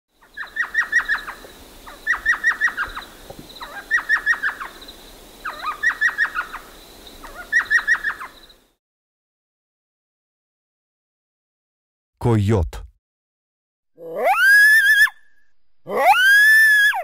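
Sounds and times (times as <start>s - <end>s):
owl calling high notes: 14.0s - 17.0s.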